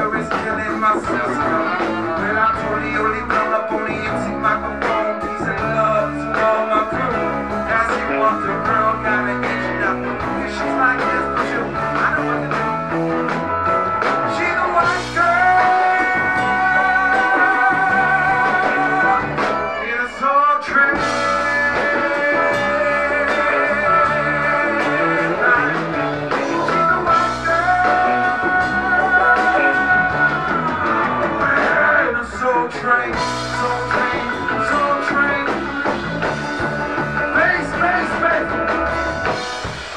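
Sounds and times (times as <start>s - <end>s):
funk-rock band playing: 0.0s - 39.9s.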